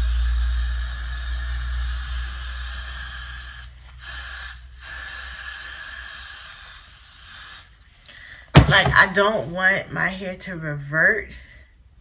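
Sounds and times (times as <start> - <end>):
low rumble: 0.0 - 4.0
aerosol spray hissing: 0.0 - 7.7.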